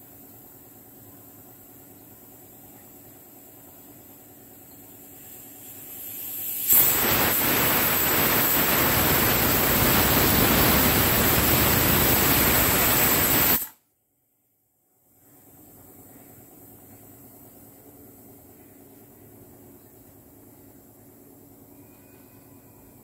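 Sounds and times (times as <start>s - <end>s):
pressure cooker whistling: 4.7s - 13.8s.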